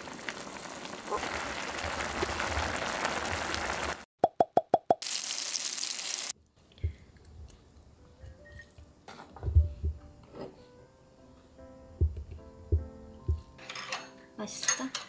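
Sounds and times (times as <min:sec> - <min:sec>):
pot of noodles simmering: 0:00.0 - 0:04.1
faint background music: 0:07.4 - 0:15.0.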